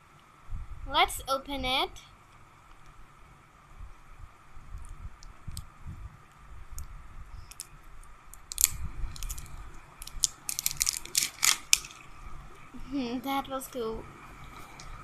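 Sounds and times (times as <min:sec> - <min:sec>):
plastic wrapping crinkling: 0:08.4 - 0:12.1.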